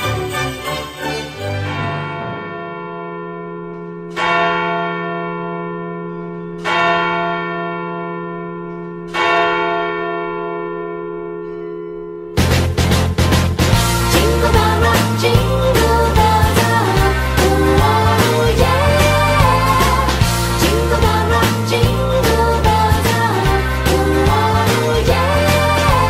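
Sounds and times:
bell tolling: 0.0 - 26.0
music with a beat: 12.4 - 26.0.

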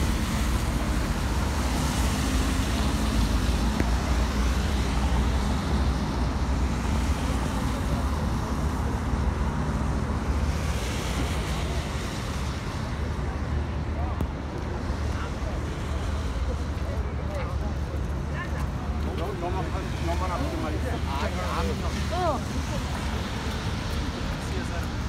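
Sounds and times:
road traffic noise: 0.0 - 25.0.

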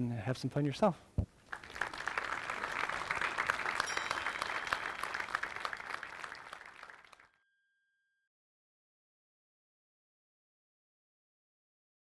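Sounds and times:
audience applauding: 1.5 - 7.3.

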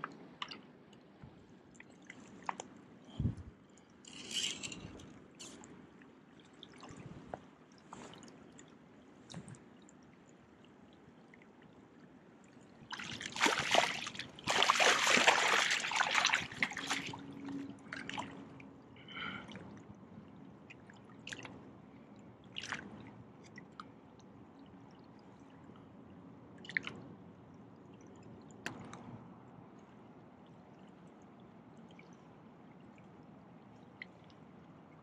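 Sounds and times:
water dripping: 12.4 - 18.1
fish thrashing in water: 12.9 - 17.3.

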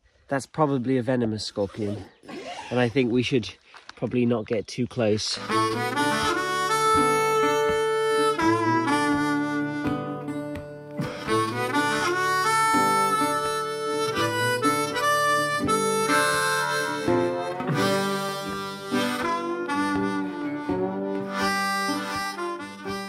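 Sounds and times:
background music with held notes: 5.4 - 23.0.

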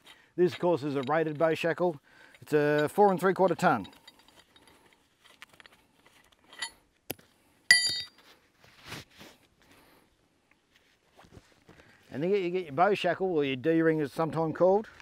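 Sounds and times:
steel shackle clinking: 0.0 - 6.9, 7.7 - 8.2
soft rustling handling noises: 0.0 - 7.5, 8.2 - 15.0.

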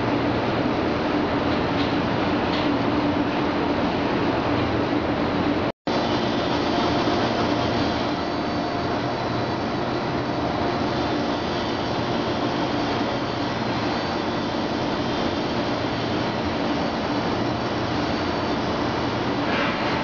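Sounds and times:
faint hum tones: 0.0 - 20.0.

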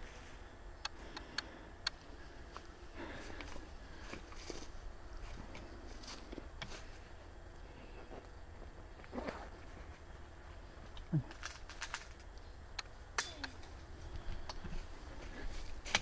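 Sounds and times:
footsteps crunching on trail: 2.0 - 7.1.

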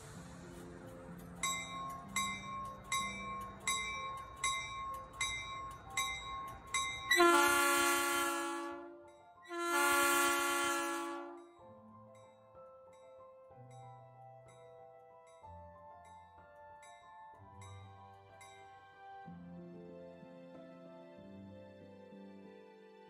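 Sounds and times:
train bell ringing: 0.0 - 11.6
train air horn blasts: 7.1 - 11.6.

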